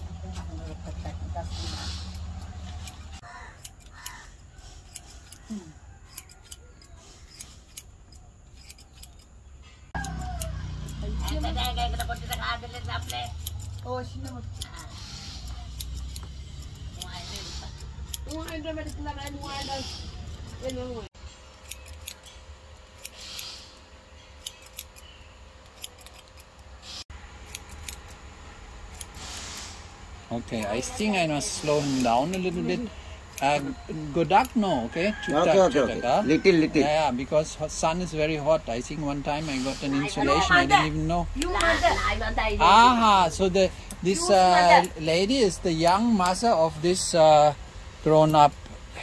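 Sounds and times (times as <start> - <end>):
scissors snipping hair: 1.6 - 9.3, 10.0 - 23.7, 24.4 - 28.2, 28.9 - 29.8, 30.4 - 35.5, 43.9 - 46.5.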